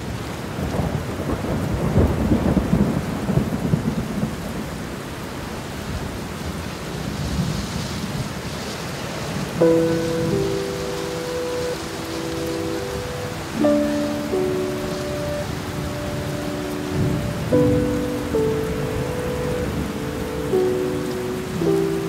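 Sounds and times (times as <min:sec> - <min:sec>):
heavy rain: 0:00.0 - 0:22.0
rushing floodwater: 0:00.0 - 0:22.0
chord of held tones: 0:09.6 - 0:22.0.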